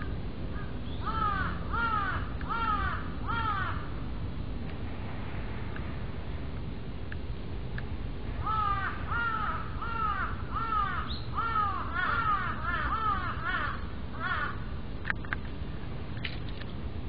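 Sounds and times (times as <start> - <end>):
crow cawing: 0.5 - 3.9, 8.4 - 14.7.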